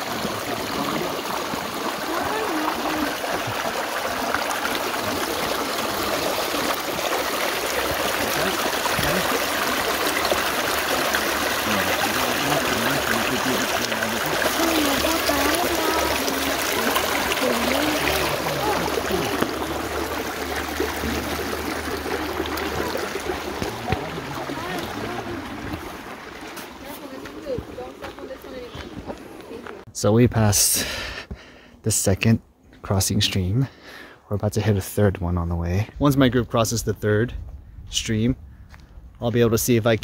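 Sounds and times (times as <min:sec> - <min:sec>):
stream trickling over rocks: 0:00.0 - 0:29.9.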